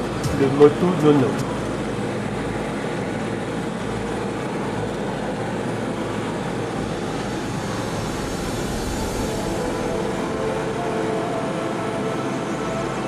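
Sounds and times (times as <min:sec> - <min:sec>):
aircraft engine drone: 0:00.0 - 0:13.0.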